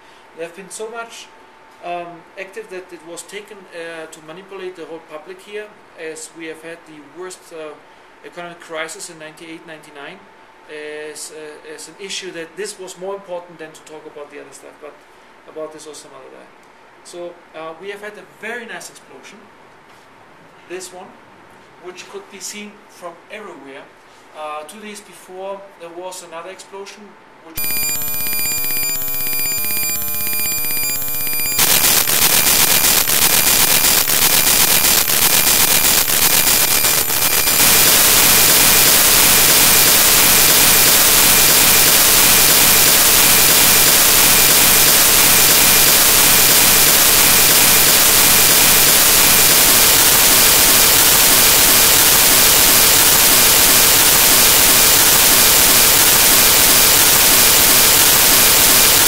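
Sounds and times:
crackling static: 27.6 - 59.0
steady electronic tones: 27.6 - 59.0.

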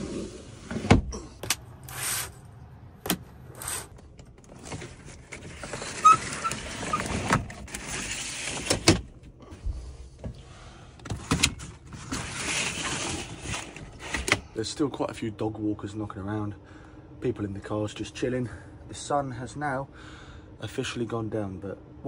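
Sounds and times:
window blinds sliding and rustling: 1.8 - 2.4, 3.5 - 4.0, 4.6 - 9.0, 11.9 - 14.4.

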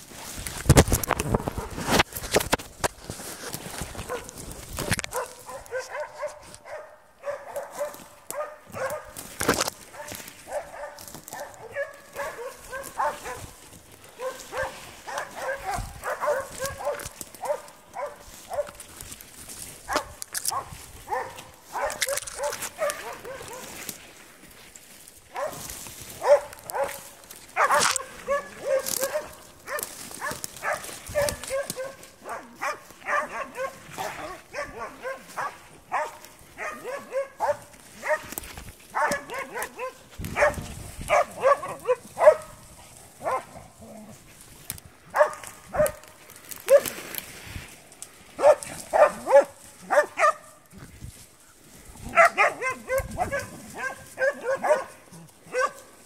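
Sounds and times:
dogs barking sharply: 4.0 - 9.3, 9.9 - 18.8, 19.8 - 23.8, 25.3 - 42.6, 43.2 - 43.6, 45.1 - 47.0, 48.4 - 50.6, 52.0 - 55.9.

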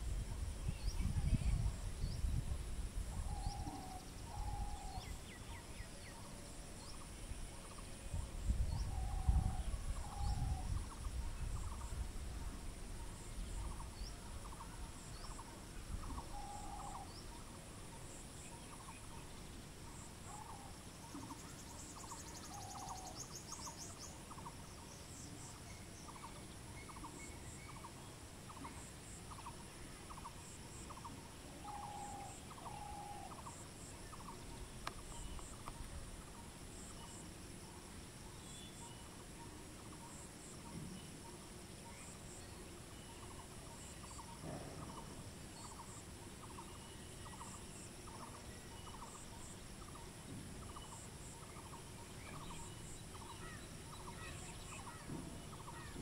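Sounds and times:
low wind rumble: 0.0 - 5.8, 7.0 - 17.4.

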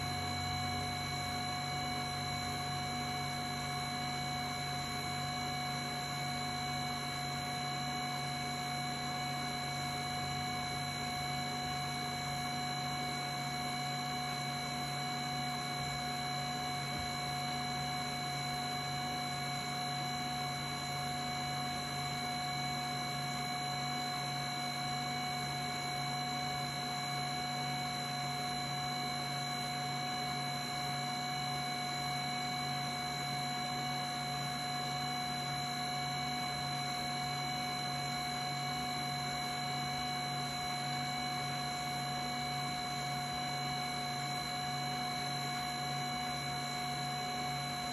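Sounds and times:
fans humming and whining: 0.0 - 6.0.

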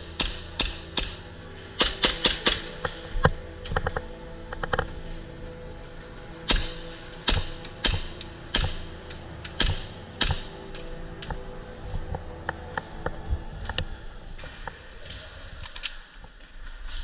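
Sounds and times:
airsoft gun shots: 6.5 - 8.8.

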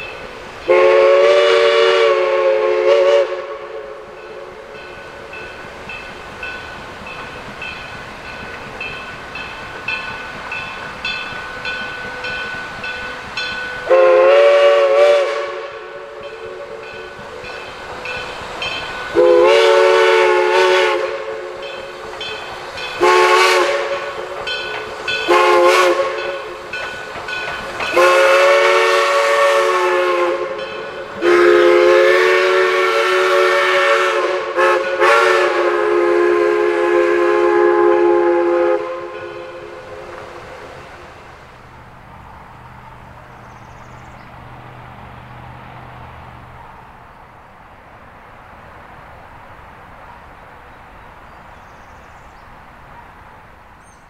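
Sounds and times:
steam locomotive chime whistle: 0.0 - 40.7.

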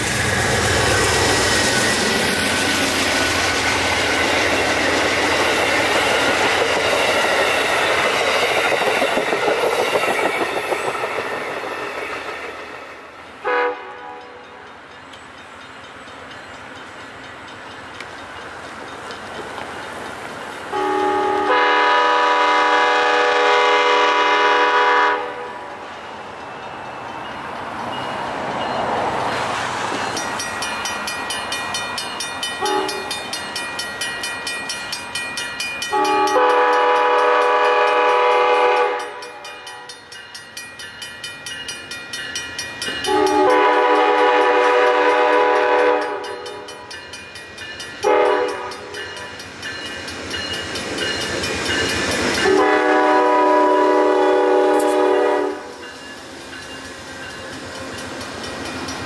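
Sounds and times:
train wheels clattering over rail joints: 0.0 - 12.8
train air horn blasts: 13.4 - 14.6, 20.7 - 25.7, 32.6 - 33.1, 35.9 - 39.9, 43.1 - 46.7, 48.0 - 49.0, 52.4 - 55.7.

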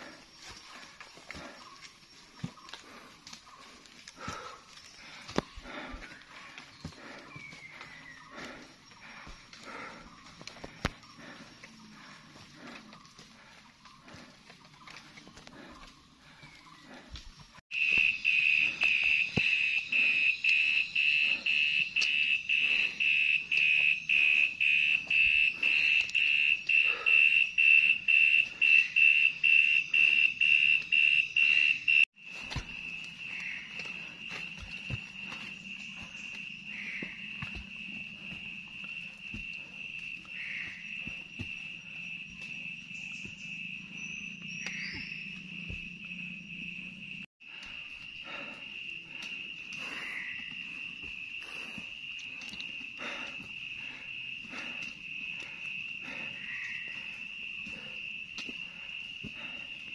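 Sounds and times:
insects trilling: 0.0 - 59.9.

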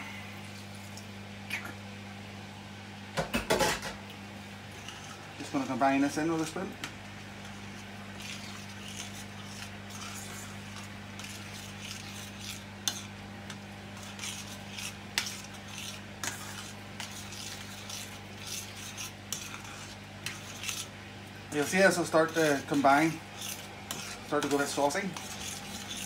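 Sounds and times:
faint sizzle: 0.0 - 3.1, 3.8 - 26.0
steady low hum: 0.0 - 26.0
spoon scraping metal pan: 7.4 - 13.1, 14.0 - 20.9, 21.6 - 26.0.

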